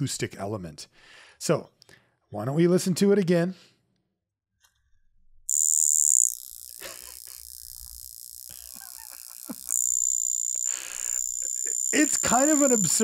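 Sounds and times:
alarm watch buzzing: 5.5s - 13.0s.

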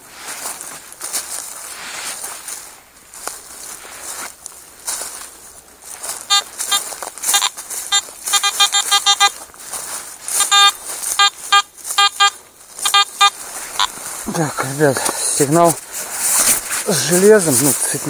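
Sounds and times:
metal detector beeping: 6.2s - 9.4s, 10.3s - 14.0s.

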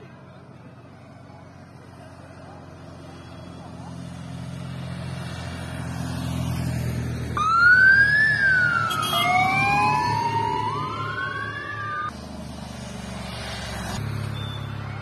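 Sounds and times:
motorcycle engines humming: 0.0s - 15.0s
siren wailing: 7.4s - 12.1s.

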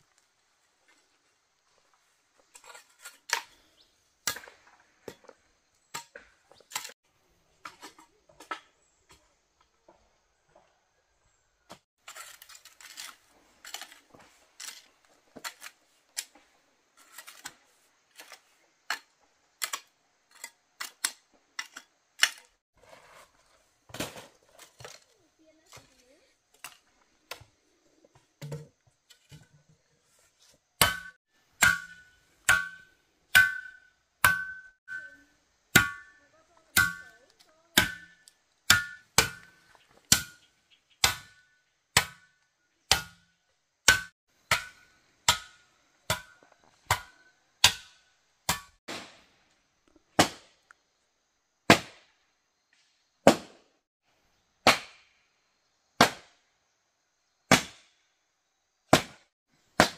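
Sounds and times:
hand tool striking metal: 30.8s - 37.2s, 37.8s - 42.3s.

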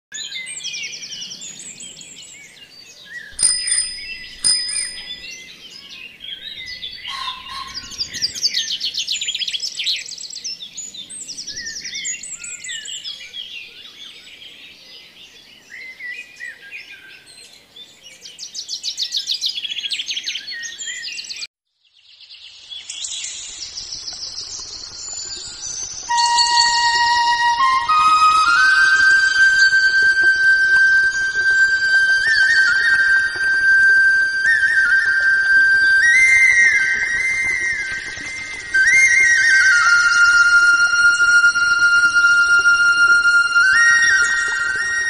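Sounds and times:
songbirds chirping and trilling: 0.2s - 33.7s.

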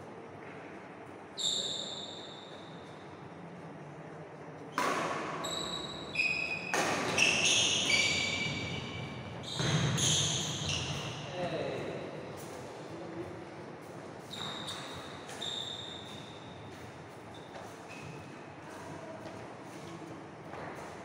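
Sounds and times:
racket hitting shuttlecock: 4.7s - 5.4s, 6.7s - 7.9s.

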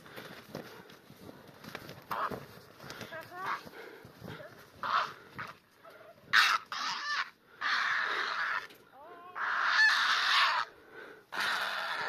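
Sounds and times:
heron squawking: 4.8s - 5.5s, 6.3s - 8.6s, 9.3s - 10.7s.

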